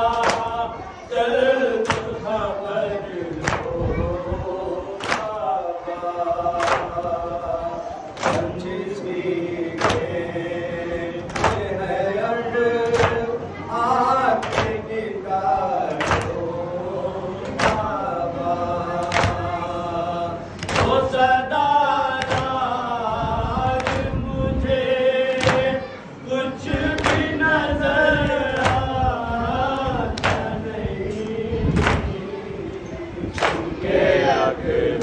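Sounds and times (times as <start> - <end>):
men chanting a lament: 0.0 - 35.0
hands slapping chests: 3.4 - 3.7, 6.6 - 7.0, 25.4 - 25.7, 28.6 - 28.9, 30.2 - 30.6, 31.8 - 32.1, 33.4 - 33.7.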